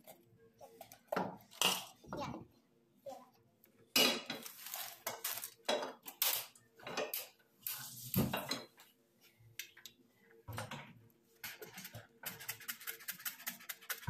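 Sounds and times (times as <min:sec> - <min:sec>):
kitchenware knocks and clinks: 0:03.9 - 0:04.6, 0:08.2 - 0:08.8.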